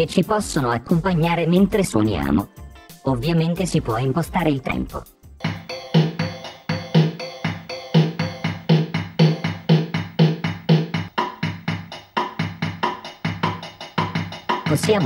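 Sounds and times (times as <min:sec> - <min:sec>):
drum machine beat: 0:04.5 - 0:15.0.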